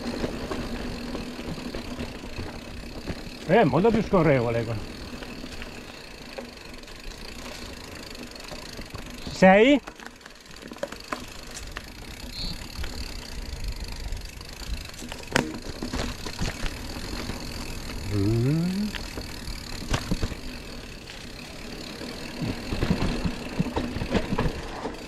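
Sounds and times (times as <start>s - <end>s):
bike rattling: 0.0s - 25.0s
bike tyres rumbling on dirt: 0.0s - 25.0s
rider vocal sound: 18.0s - 19.0s.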